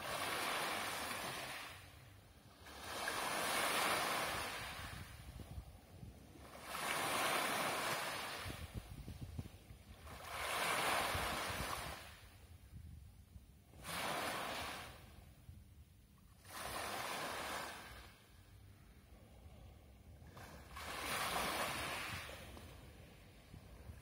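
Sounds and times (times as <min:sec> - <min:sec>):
waves breaking on pebble beach: 0:00.0 - 0:01.9, 0:02.6 - 0:05.0, 0:06.4 - 0:08.7, 0:10.0 - 0:12.2, 0:13.8 - 0:15.0, 0:16.4 - 0:18.1, 0:20.4 - 0:22.8.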